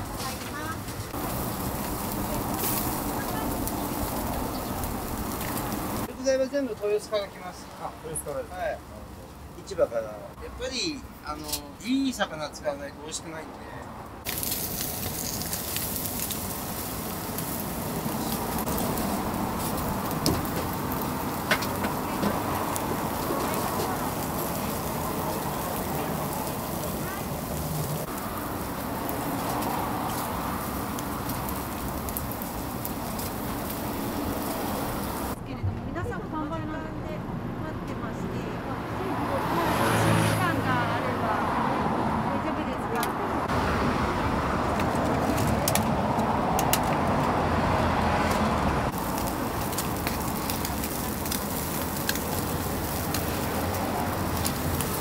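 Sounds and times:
fish sizzling on charcoal grill: 0:00.0 - 0:12.4, 0:14.2 - 0:35.4, 0:38.8 - 0:42.3, 0:43.4 - 0:55.0
crackles and pops: 0:00.2 - 0:06.1, 0:14.2 - 0:35.4, 0:48.9 - 0:55.0.

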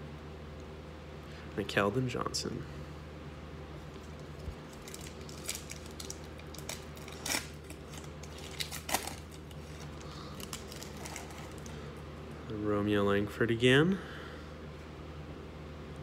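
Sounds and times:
steady low hum: 0:00.0 - 0:16.0
foil wrapper crinkling and tearing: 0:04.1 - 0:11.8.

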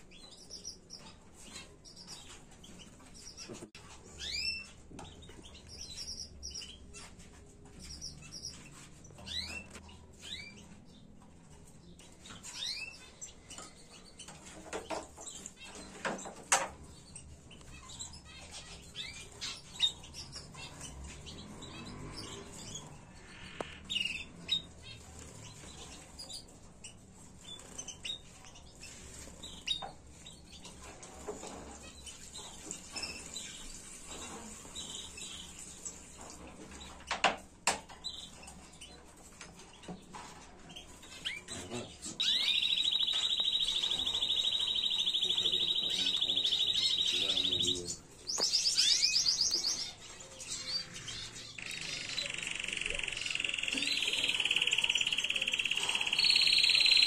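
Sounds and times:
canaries chirping and trilling: 0:00.0 - 0:57.0.

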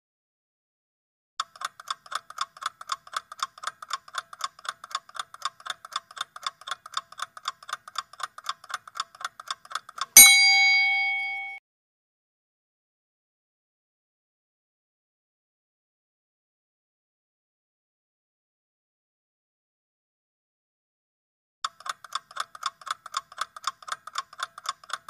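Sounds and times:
fast clock ticking: 0:01.4 - 0:10.2, 0:21.6 - 0:25.0
bell ding: 0:10.2 - 0:11.6.

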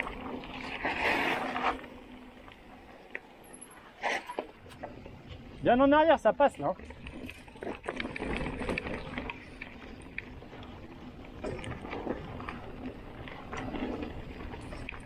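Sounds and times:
bike tyres crunching over stones: 0:00.0 - 0:15.0.

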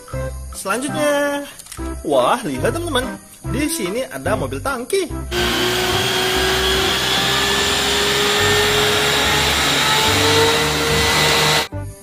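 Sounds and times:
truck pump running: 0:05.3 - 0:11.7.

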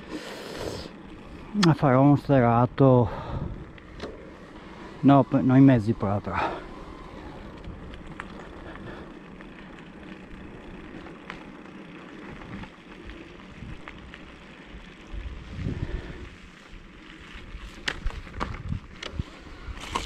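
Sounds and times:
bike tyres rolling on asphalt: 0:00.0 - 0:20.0
tyres crackling on icy snow: 0:00.0 - 0:20.0
wind buffeting microphone: 0:01.0 - 0:09.3, 0:15.0 - 0:20.0.

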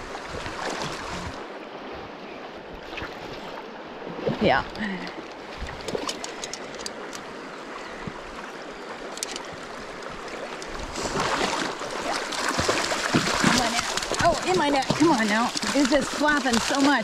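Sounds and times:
stream rippling over stones: 0:00.0 - 0:01.9, 0:03.0 - 0:17.0
fish splashing in water: 0:09.4 - 0:17.0.

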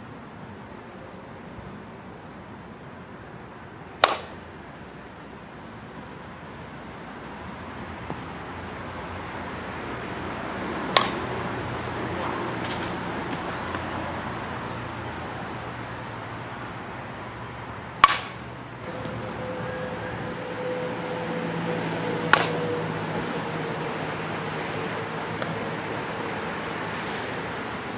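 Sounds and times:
steady outdoor noise: 0:00.0 - 0:27.9
bat striking softball: 0:04.0 - 0:04.4, 0:10.8 - 0:11.4, 0:17.9 - 0:20.5, 0:21.7 - 0:23.2.

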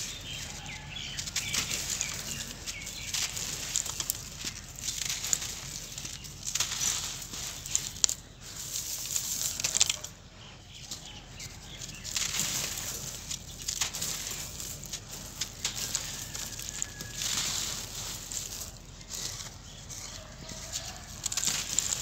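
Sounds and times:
crumbling clods by hand: 0:00.0 - 0:22.0
ticks of falling bits: 0:01.0 - 0:10.2, 0:20.7 - 0:22.0.

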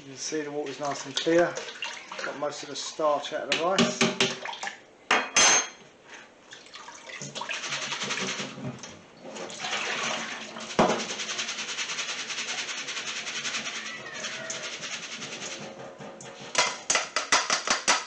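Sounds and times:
water draining into a metal sink: 0:00.7 - 0:03.1, 0:06.5 - 0:11.5.

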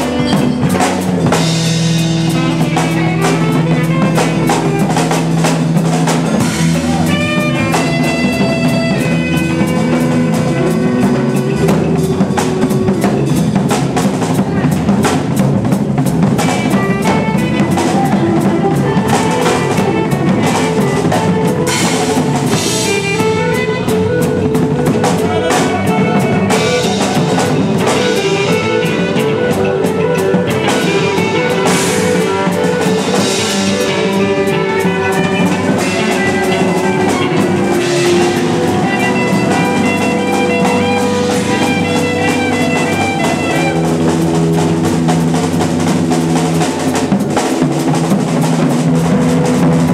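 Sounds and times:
droning electric guitar: 0:00.0 - 0:49.9
drum kit playing: 0:00.0 - 0:49.9.

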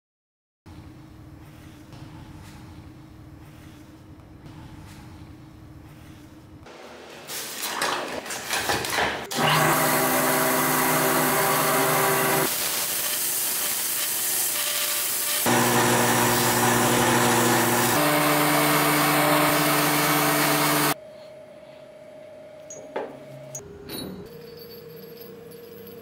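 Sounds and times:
polishing motor humming: 0:09.3 - 0:12.5, 0:14.9 - 0:21.0
abrasive hiss of polishing: 0:11.9 - 0:15.6.

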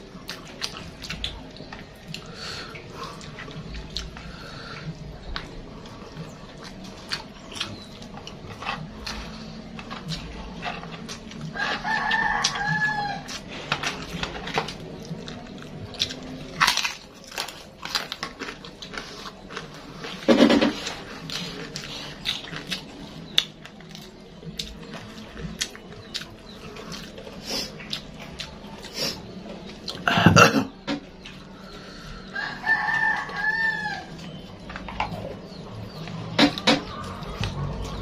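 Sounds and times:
chewing and lip smacking: 0:00.0 - 0:30.1
rooster crowing: 0:11.5 - 0:13.4, 0:32.2 - 0:34.3.

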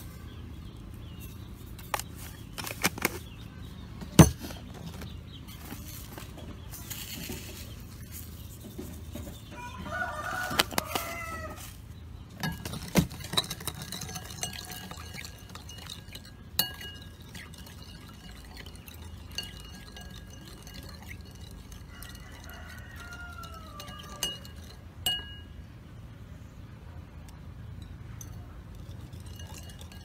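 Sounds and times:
sharp clinks and knocks: 0:04.0 - 0:05.1, 0:12.3 - 0:25.6
rooster crowing: 0:09.5 - 0:11.8, 0:21.9 - 0:24.6.

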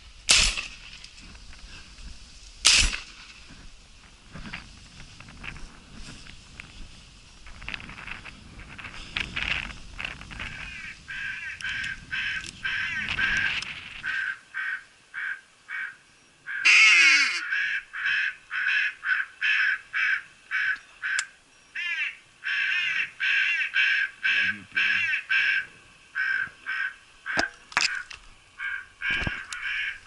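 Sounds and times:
rustling and handling noise: 0:00.8 - 0:11.1
crows cawing: 0:10.3 - 0:30.0.

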